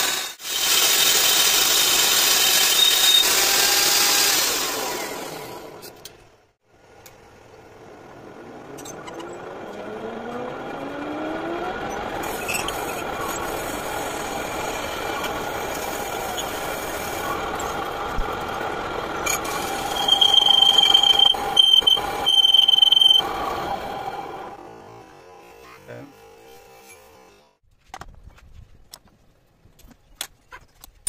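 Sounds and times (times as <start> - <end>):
cutting tool squealing: 2.2 - 3.8, 11.9 - 17.8, 19.2 - 23.3
metal lathe cutting with whine: 11.9 - 24.6.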